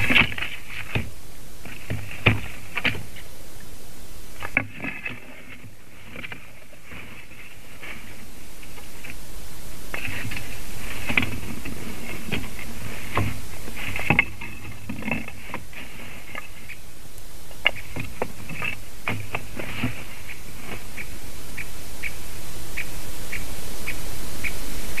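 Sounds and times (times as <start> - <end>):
twigs rustling and snapping: 0.0 - 3.7, 4.3 - 22.2
short evenly spaced ticks: 6.1 - 25.0.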